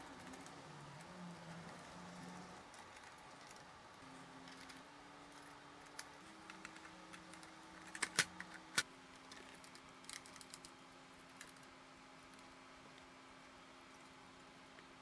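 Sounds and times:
sharp plastic clicks: 0:05.9 - 0:11.6.

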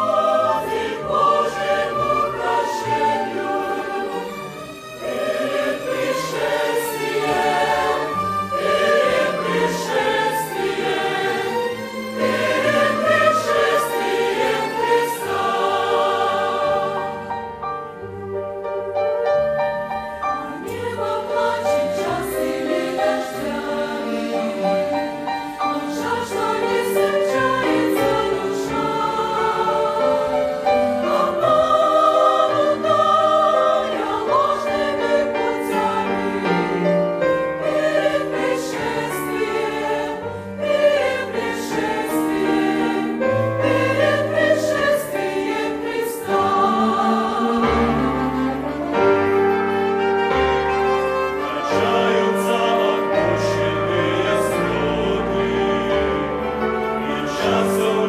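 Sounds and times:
mixed choir singing a hymn: 0:00.0 - 0:18.0, 0:19.9 - 0:58.0.

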